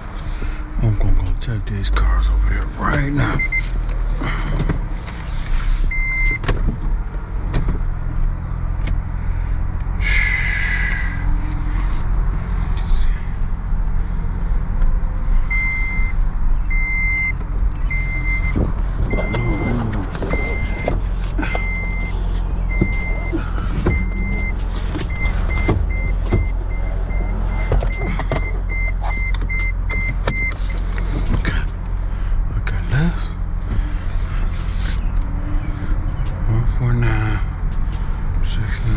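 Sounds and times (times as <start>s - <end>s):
low rumble of car moving: 0.0s - 38.9s
car warning chime beeping: 1.8s - 3.7s, 5.9s - 6.4s, 15.5s - 30.9s.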